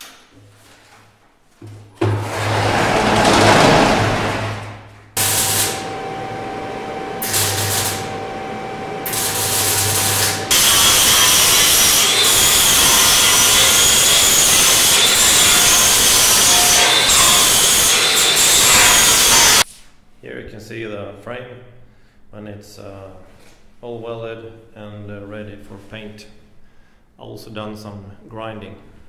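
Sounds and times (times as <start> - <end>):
welding arc hissing and buzzing: 5.2 - 8.2, 9.0 - 19.6
angle grinder whining on steel: 5.2 - 19.6.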